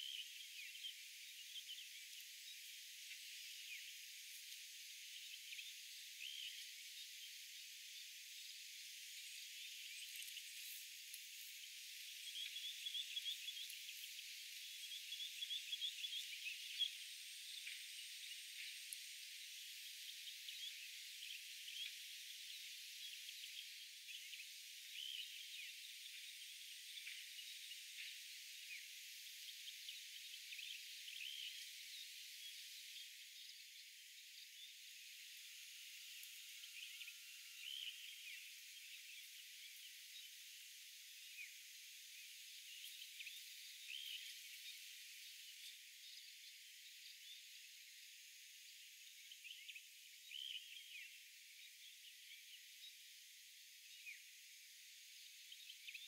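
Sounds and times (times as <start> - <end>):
insects and frogs chirping: 0.0 - 56.0.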